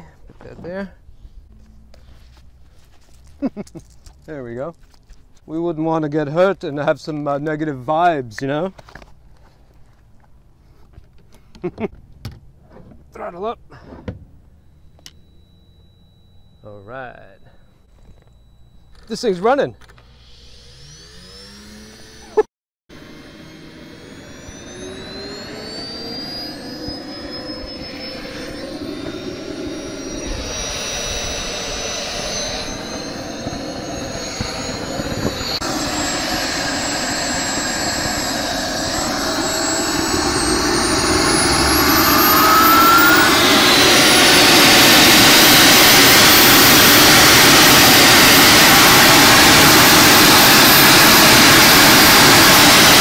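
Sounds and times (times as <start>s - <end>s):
small jet engine spooling up: 14.6s - 53.0s.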